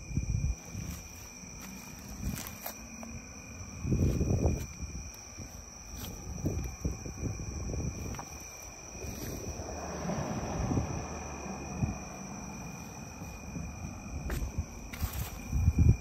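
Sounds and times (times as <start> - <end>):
night insects trilling: 0.0 - 16.0
rustling through grass and weeds: 0.5 - 9.6, 14.2 - 16.0
footsteps through grass: 0.6 - 3.2, 3.9 - 6.8, 14.2 - 15.8.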